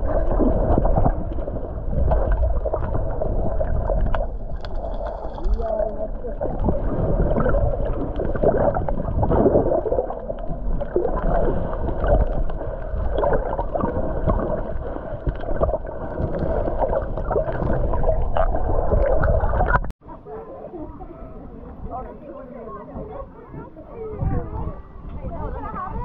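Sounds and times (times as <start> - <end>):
muffled underwater sloshing and gurgling: 0.0 - 19.9
small underwater pops and clicks: 4.0 - 5.9.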